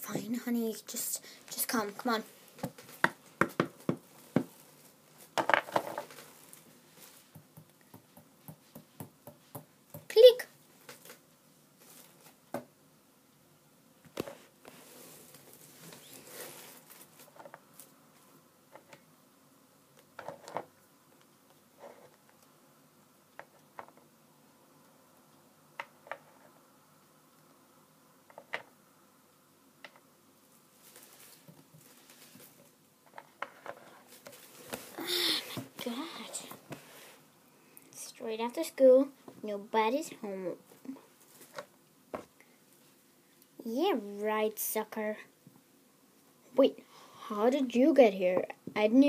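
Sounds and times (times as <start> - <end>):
objects tapping and clicking on desk: 2.6 - 4.5, 5.4 - 6.1, 7.3 - 10.1
small toys tapping on hard surface: 3.0 - 4.5
rustle: 14.2 - 18.4, 30.4 - 37.2.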